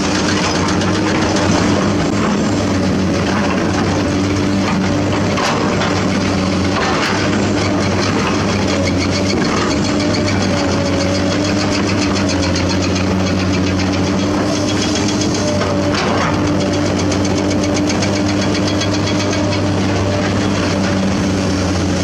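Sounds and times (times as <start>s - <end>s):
excavator diesel engine running: 0.0s - 22.0s.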